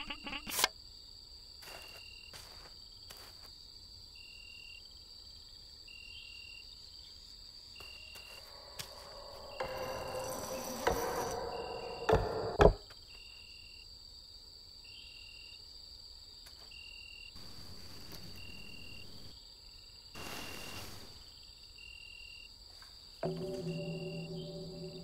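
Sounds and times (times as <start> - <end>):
steady insect hum: 0.0 - 25.0
crickets chirping: 0.8 - 25.0
low musical drone: 8.3 - 12.7, 23.2 - 25.0
sharp knocks: 8.4 - 12.8, 23.2 - 25.0.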